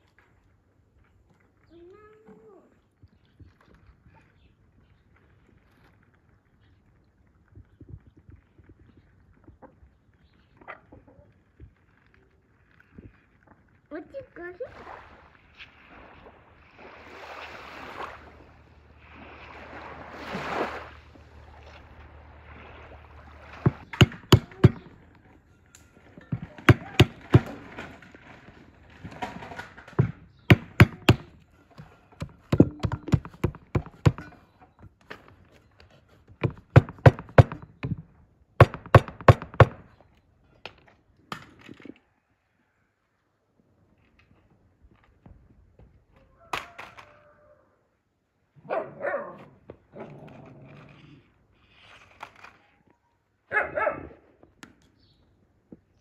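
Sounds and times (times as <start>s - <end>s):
small waves washing onto beach: 14.6s - 25.0s.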